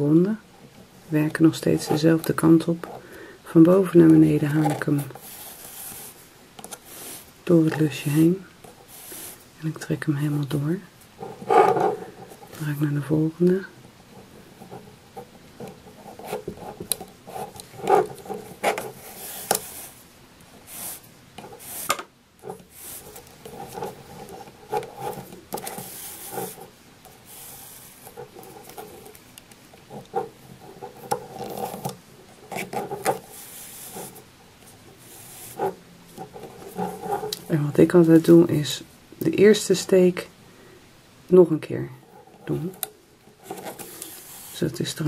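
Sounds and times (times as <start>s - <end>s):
yarn rustling and rubbing: 15.8s - 38.6s.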